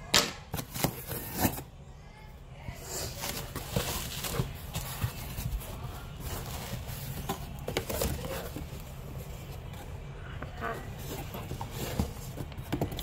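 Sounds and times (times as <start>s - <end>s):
cardboard box being opened: 3.1s - 9.9s.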